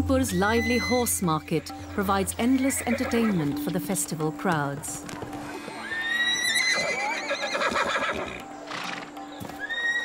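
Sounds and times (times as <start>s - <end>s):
horse whinnying: 5.8s - 10.0s.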